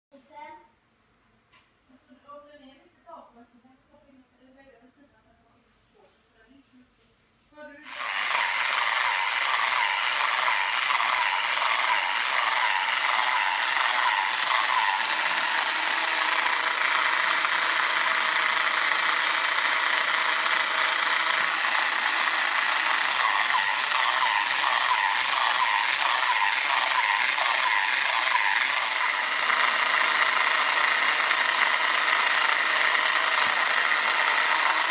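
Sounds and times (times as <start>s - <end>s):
toy motor whirring: 7.8s - 34.9s
rhythmic ratcheting clatter: 7.9s - 34.9s.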